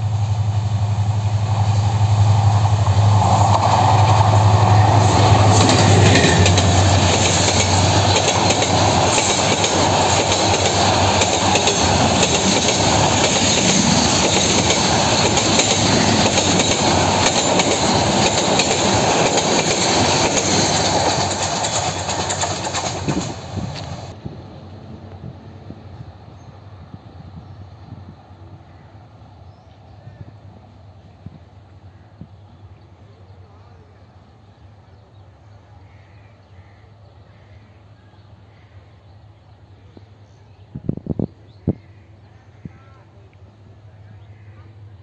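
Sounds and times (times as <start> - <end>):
diesel locomotive hum: 0.0 - 45.0
train coaches rumbling past: 0.0 - 45.0
train wheels clickety-clack: 2.1 - 24.2.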